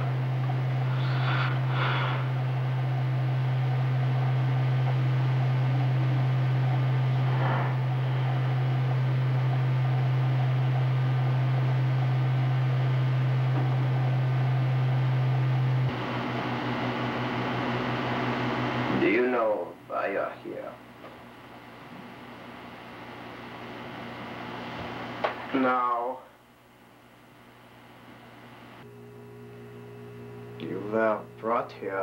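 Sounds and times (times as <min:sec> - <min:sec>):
loud low hum: 0:00.0 - 0:19.8
short hissing: 0:00.8 - 0:02.4.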